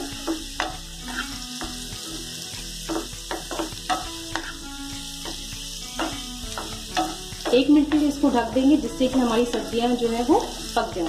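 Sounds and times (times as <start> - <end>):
vegetables sizzling in oil: 0.0 - 11.0
spatula scraping and tapping pan: 0.2 - 4.6, 5.2 - 8.3.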